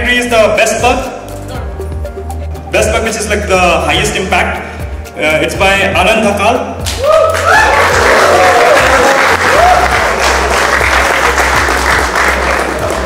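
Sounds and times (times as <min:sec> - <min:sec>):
background music: 0:00.0 - 0:13.0
audience applauding: 0:07.0 - 0:13.0.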